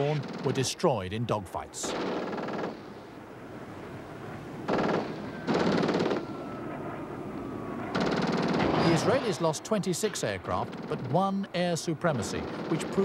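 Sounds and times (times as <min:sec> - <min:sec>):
rapid automatic gunfire: 0:01.8 - 0:02.9, 0:04.7 - 0:06.2, 0:08.0 - 0:08.8, 0:12.1 - 0:13.0
faint falling whine: 0:03.4 - 0:11.5.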